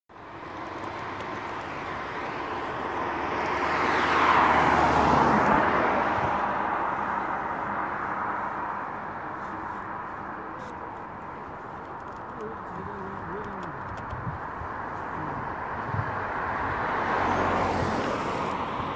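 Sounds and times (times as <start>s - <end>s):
vehicle passing by: 1.8s - 9.8s, 15.2s - 18.9s.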